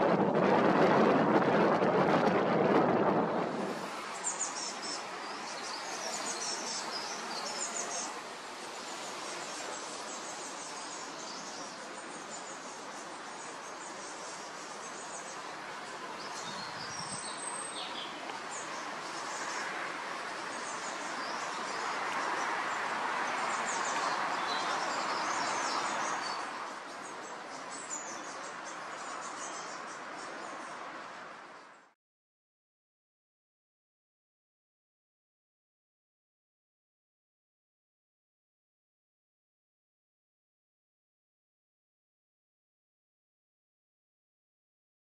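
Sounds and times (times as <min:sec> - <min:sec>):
steady rushing hiss: 0:03.2 - 0:31.5
small birds chirping: 0:04.2 - 0:31.7.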